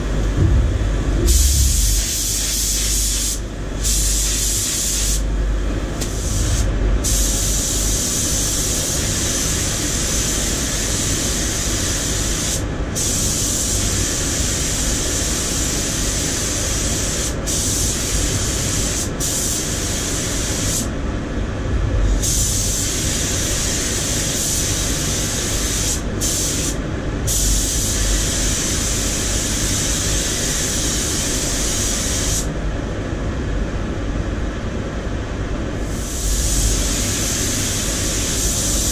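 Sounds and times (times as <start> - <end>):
low rumble of air extraction: 0.0 - 38.9
paint spray gun hissing: 1.2 - 5.2, 6.1 - 18.1, 22.2 - 32.5.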